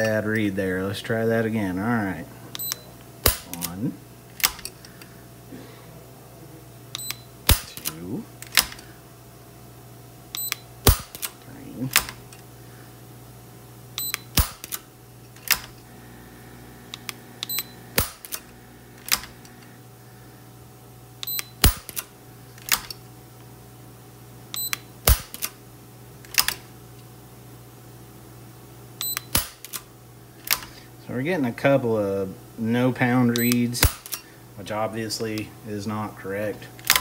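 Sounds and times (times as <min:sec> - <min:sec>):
revolver dry-fire clicks: 0:02.5 - 0:05.1, 0:06.9 - 0:08.9, 0:10.3 - 0:12.5, 0:14.0 - 0:15.8, 0:16.9 - 0:19.7, 0:21.2 - 0:23.0, 0:26.2 - 0:26.7, 0:29.0 - 0:30.8, 0:33.4 - 0:34.3, 0:36.8 - 0:37.0.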